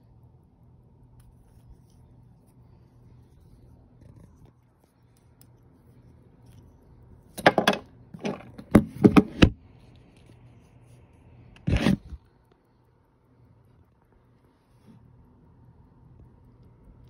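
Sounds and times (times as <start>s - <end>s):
watch strap rubbing scrape: 11.6s - 12.2s.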